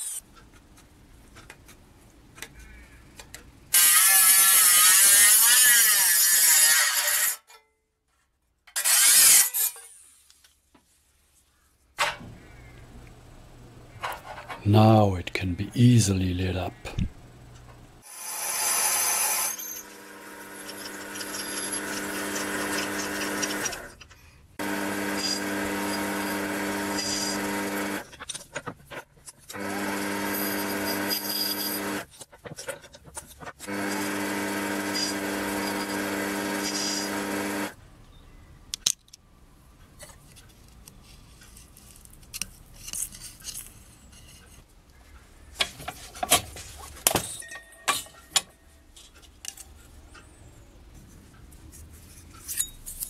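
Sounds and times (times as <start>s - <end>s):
lathe motor humming: 19.0s - 23.9s, 24.6s - 28.0s, 29.6s - 32.0s, 33.6s - 37.8s
metal parts clicking and knocking: 38.7s - 39.2s.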